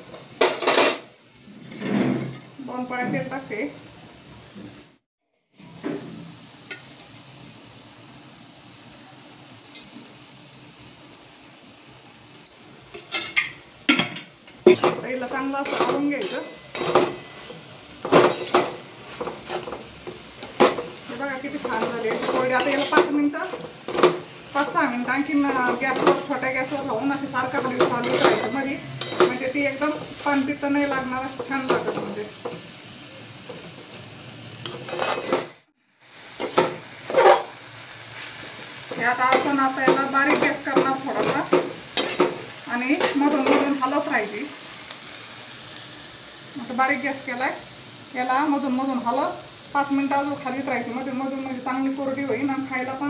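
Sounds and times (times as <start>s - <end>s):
oil sizzling quietly: 0.0s - 53.0s
spatula scraping metal pan: 27.6s - 30.5s, 34.6s - 35.6s, 36.4s - 37.5s
spatula scraping steel pan: 34.6s - 35.5s.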